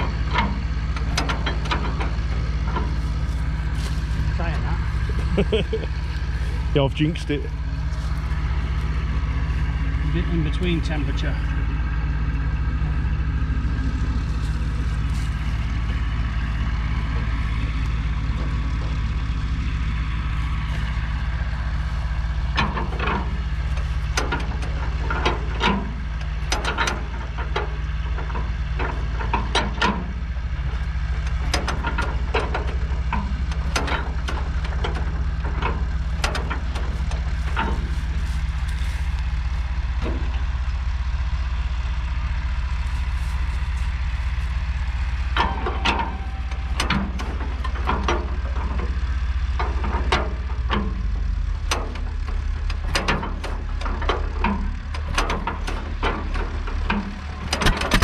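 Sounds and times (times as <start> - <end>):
tractor engine idling: 0.0 - 58.0.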